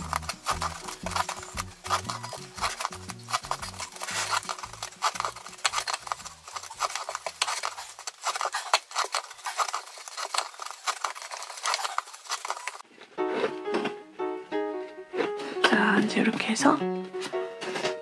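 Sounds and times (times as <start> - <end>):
plucked string music: 0.0 - 6.7, 13.2 - 18.0
cord rustling and clicking: 0.0 - 12.8.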